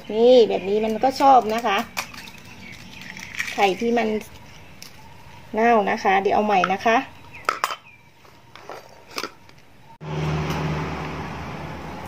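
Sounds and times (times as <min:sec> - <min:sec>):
vehicle engine humming: 0:09.4 - 0:12.0.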